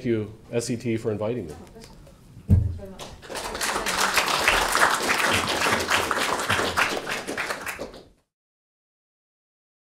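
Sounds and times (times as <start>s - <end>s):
audience applauding: 3.2s - 8.2s.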